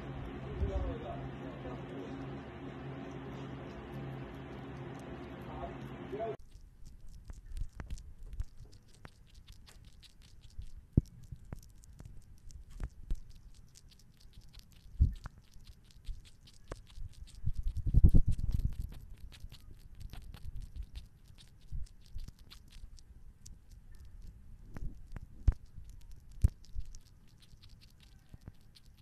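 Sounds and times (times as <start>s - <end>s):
small animal eating clicks: 0.0s - 29.0s.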